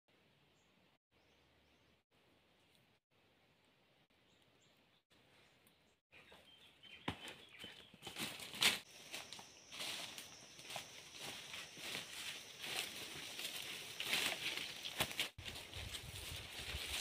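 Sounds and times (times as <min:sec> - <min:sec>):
footsteps crunching through dry leaves: 0:07.9 - 0:17.0.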